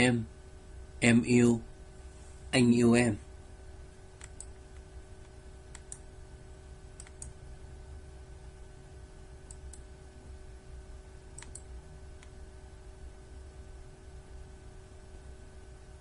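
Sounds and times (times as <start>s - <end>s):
steady low hum: 0.0s - 16.0s
faint sharp clicks: 4.2s - 6.0s, 7.0s - 7.3s, 11.4s - 12.4s.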